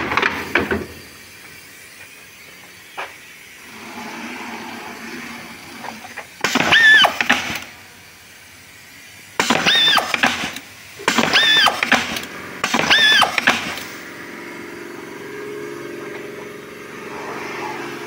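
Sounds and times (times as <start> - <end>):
machine squealing whine: 0.0 - 7.7, 11.2 - 11.9, 12.7 - 18.0
machine running hum: 0.0 - 18.0.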